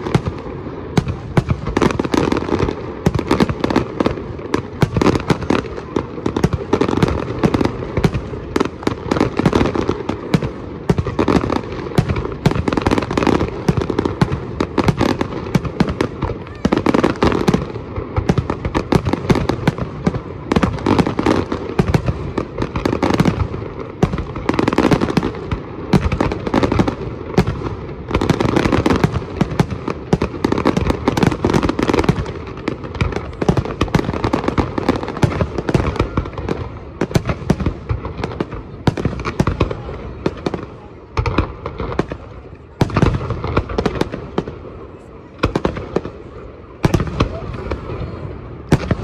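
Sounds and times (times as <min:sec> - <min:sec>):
fireworks crackle: 0:00.0 - 0:49.0.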